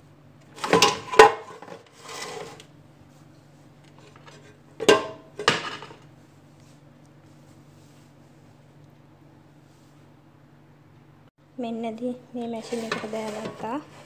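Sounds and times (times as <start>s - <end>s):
basket scraping: 0.6s - 2.7s, 12.5s - 14.0s.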